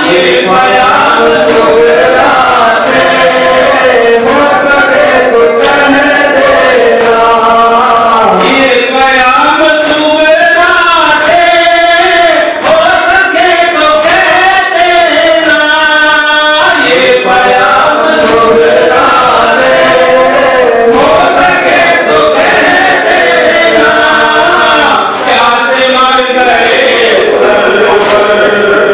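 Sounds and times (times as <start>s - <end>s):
men chanting into microphones: 0.0s - 28.9s.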